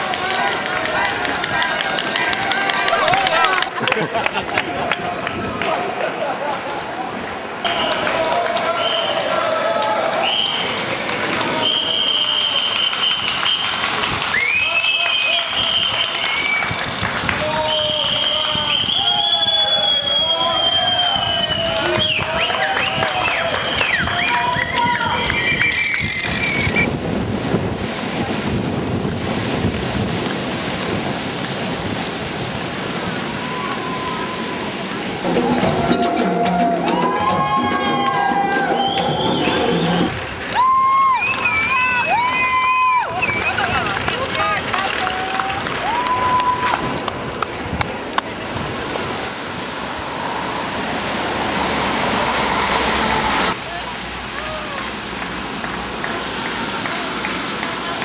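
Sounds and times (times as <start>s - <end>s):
skate wheels hissing on wet road: 0.0s - 35.4s, 37.8s - 58.0s
rain on microphone: 0.0s - 58.0s
wind on microphone: 16.5s - 19.8s, 21.0s - 40.6s, 45.5s - 53.6s
sharp clicks: 25.6s - 26.9s.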